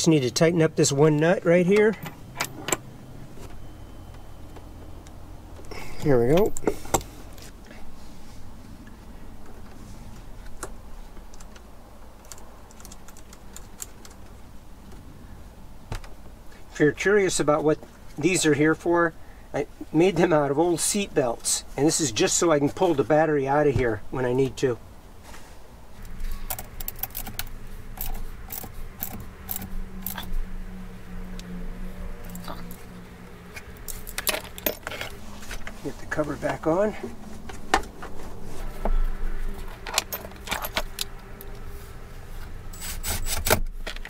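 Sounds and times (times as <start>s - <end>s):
nut tightening metallic clicks: 26.1s - 30.3s.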